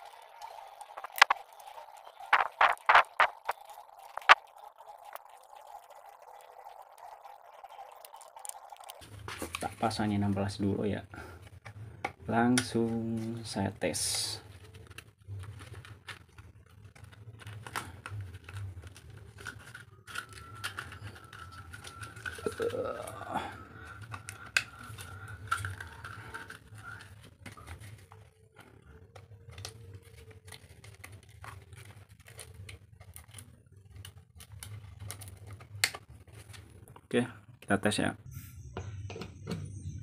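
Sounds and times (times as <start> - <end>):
sandpaper crinkling: 2.3 - 3.5.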